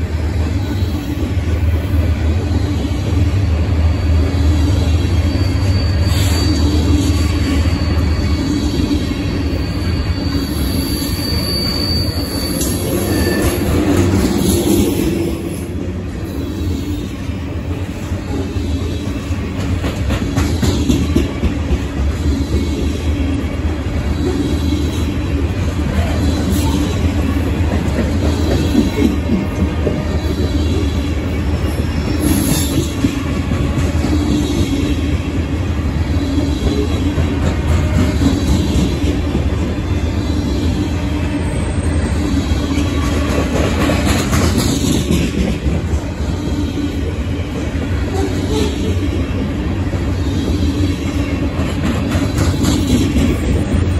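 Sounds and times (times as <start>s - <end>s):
train wheels rumbling on rail: 0.0s - 53.9s
high wheel squeal: 3.8s - 17.2s.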